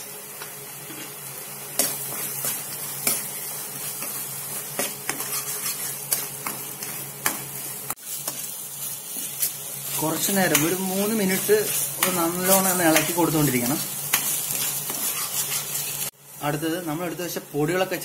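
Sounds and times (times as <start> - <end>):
paste sizzling in a pan: 0.0 - 18.0
spatula scraping a frying pan: 1.8 - 16.1.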